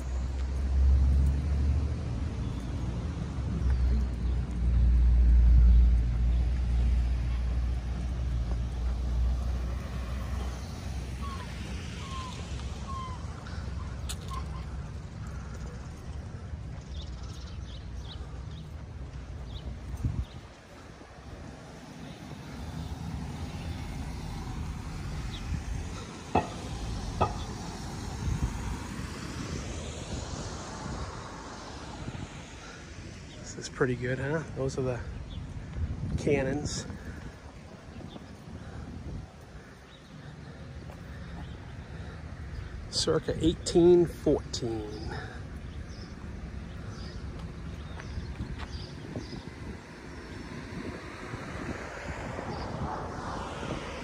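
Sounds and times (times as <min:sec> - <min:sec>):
cars driving past: 0:00.0 - 0:54.0.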